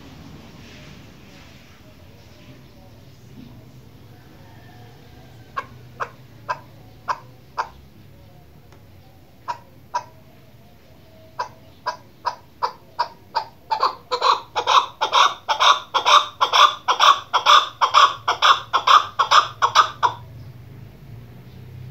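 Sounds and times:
partridge clucking calls: 0:04.5 - 0:20.3.

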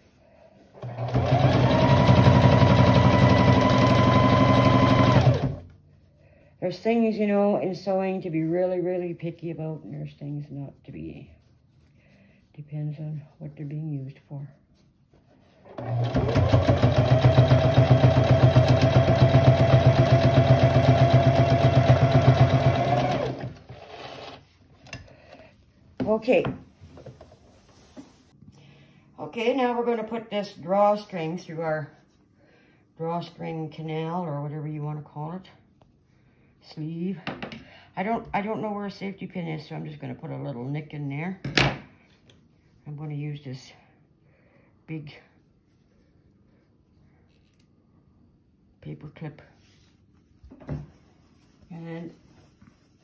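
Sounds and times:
sewing machine stitching: 0:00.8 - 0:05.7, 0:15.6 - 0:24.4
faint handling sounds: 0:45.4 - 0:53.0.

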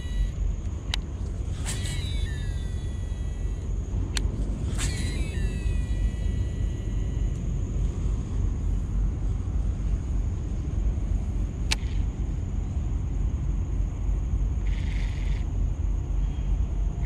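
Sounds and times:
sharp click: 0:00.0 - 0:06.4, 0:11.7 - 0:12.0.

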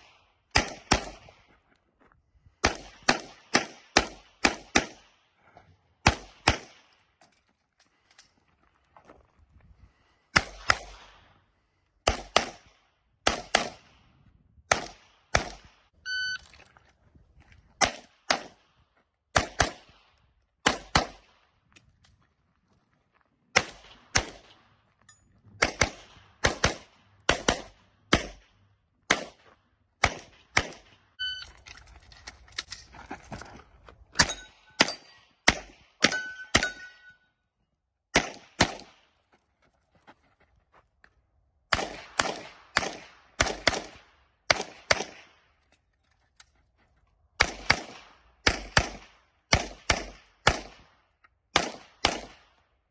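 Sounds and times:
pistol shots: 0:00.0 - 0:01.3, 0:02.6 - 0:05.1, 0:06.0 - 0:06.9, 0:12.0 - 0:13.9, 0:14.7 - 0:15.7, 0:17.8 - 0:18.6, 0:19.3 - 0:20.0, 0:20.6 - 0:21.4, 0:23.6 - 0:24.6, 0:25.6 - 0:29.4, 0:30.0 - 0:31.0, 0:34.2 - 0:37.0, 0:38.1 - 0:39.0, 0:41.7 - 0:45.4, 0:47.4 - 0:50.9, 0:51.5 - 0:52.5
metallic ringing of steel targets: 0:34.2 - 0:35.4, 0:36.0 - 0:37.4.

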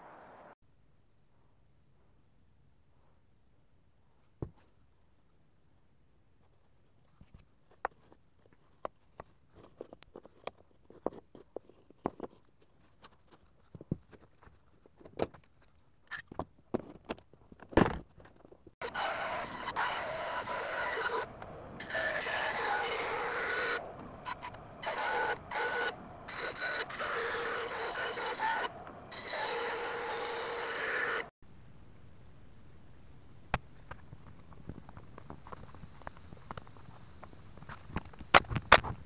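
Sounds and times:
scroll saw buzzing: 0:18.8 - 0:31.3.

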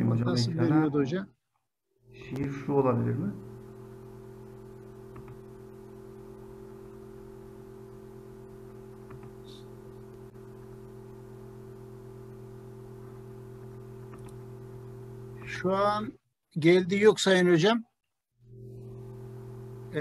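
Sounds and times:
steady low hum: 0:02.1 - 0:16.2, 0:18.5 - 0:20.0.

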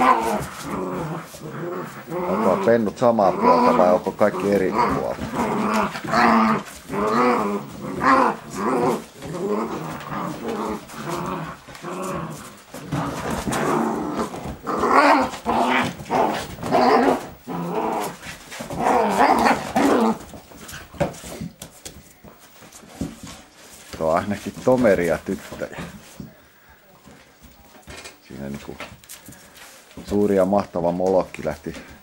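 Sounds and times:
puppies growling: 0:00.0 - 0:21.6.

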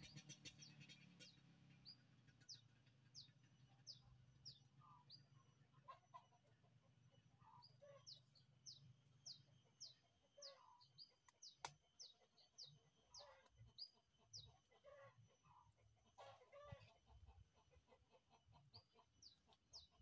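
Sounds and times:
small bird chirping: 0:00.0 - 0:20.0
chicken clucking: 0:05.8 - 0:08.8, 0:09.6 - 0:11.2, 0:12.2 - 0:20.0.

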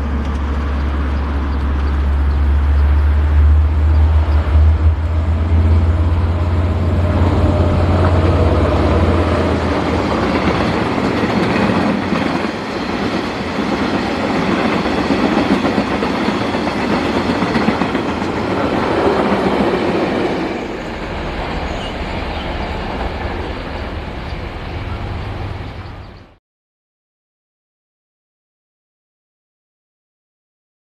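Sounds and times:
locomotive engine drone: 0:00.0 - 0:26.4
wheels clattering on rails: 0:07.0 - 0:25.0.

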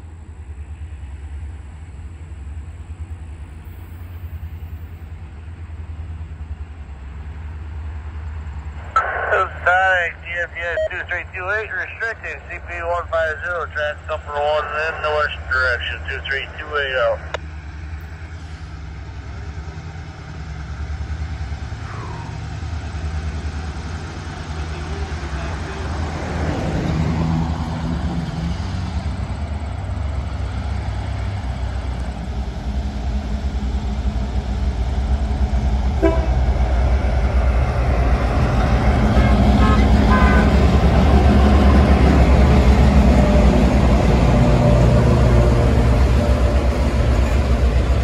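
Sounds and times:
low engine rumble: 0:00.0 - 0:48.0.

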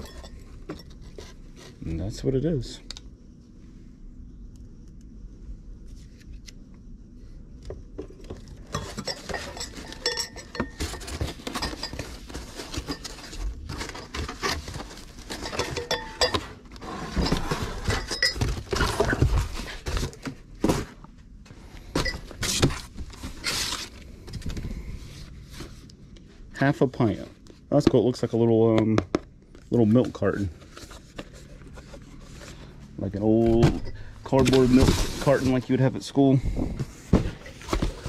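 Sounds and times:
glasses clinking: 0:08.7 - 0:12.1, 0:15.3 - 0:16.5, 0:17.2 - 0:18.6
cardboard rustling: 0:10.8 - 0:15.7, 0:16.4 - 0:21.0, 0:29.7 - 0:35.9, 0:36.6 - 0:38.0.

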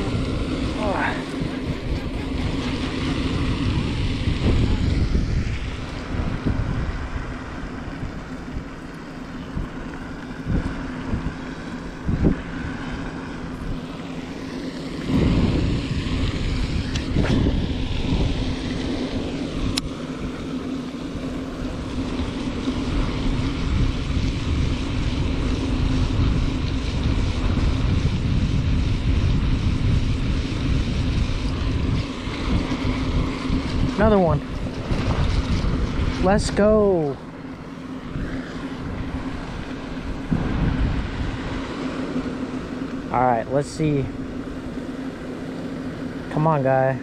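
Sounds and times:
wind buffeting microphone: 0:00.0 - 0:46.4.

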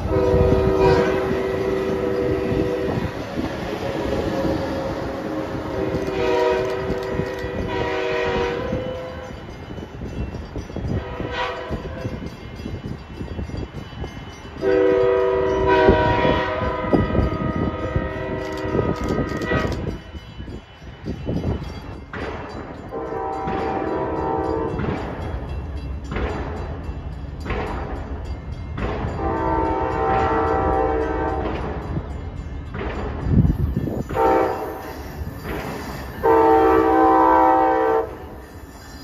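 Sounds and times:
multi-note train horn blasts: 0:00.0 - 0:09.4, 0:10.9 - 0:12.2, 0:14.6 - 0:20.0, 0:22.9 - 0:25.0, 0:29.0 - 0:31.8, 0:34.0 - 0:35.0, 0:36.1 - 0:38.4
train rumble and wheel clatter: 0:00.0 - 0:39.0.

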